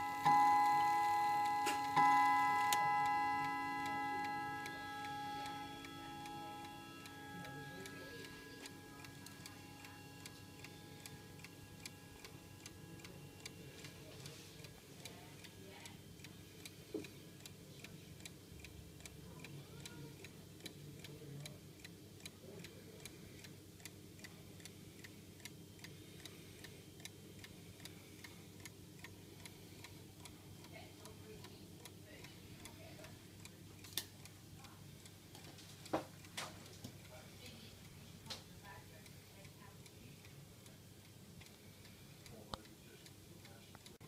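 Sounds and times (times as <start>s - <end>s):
clock chime rods ringing: 0.0s - 9.8s
clock ticking: 0.0s - 44.0s.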